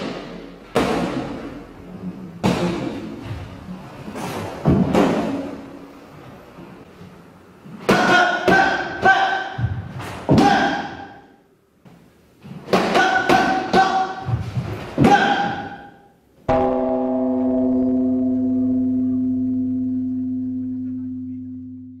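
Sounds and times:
gong-like tone: 0:16.5 - 0:22.0.

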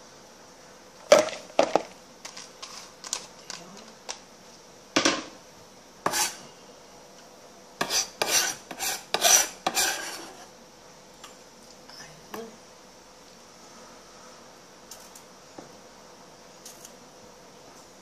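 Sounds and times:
knife scraping cutting board: 0:06.1 - 0:06.4, 0:07.8 - 0:10.5.

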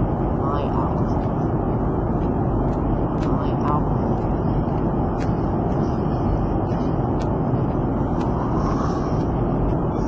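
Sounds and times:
airliner cabin engine rush: 0:00.0 - 0:10.0.

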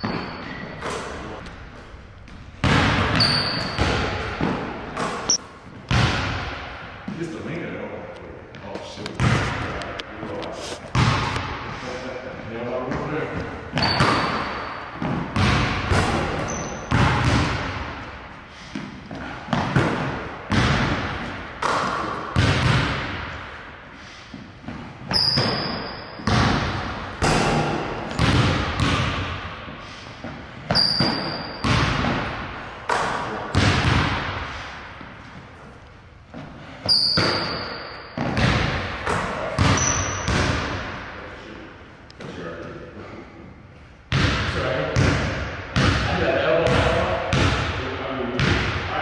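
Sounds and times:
sneaker squeaks on floor: 0:00.0 - 0:01.2, 0:03.1 - 0:05.4, 0:13.4 - 0:15.2, 0:16.4 - 0:17.0, 0:24.7 - 0:26.3, 0:30.2 - 0:31.8, 0:36.8 - 0:38.5, 0:39.1 - 0:40.4
basketball bouncing and hitting rim: 0:00.0 - 0:01.6, 0:02.2 - 0:07.2, 0:08.5 - 0:10.0, 0:10.9 - 0:11.7, 0:12.9 - 0:35.2, 0:36.3 - 0:41.2, 0:44.1 - 0:47.8, 0:48.4 - 0:48.9.

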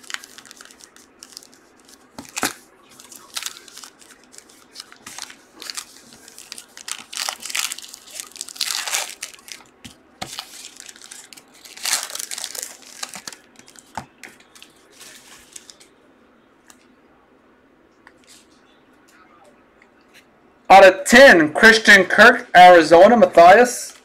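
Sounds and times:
foil wrappers crinkling and tearing: 0:00.0 - 0:15.9.

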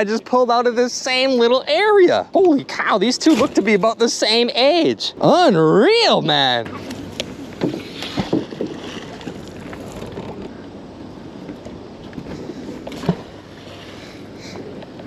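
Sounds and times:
wind and water rushing: 0:03.6 - 0:15.0.

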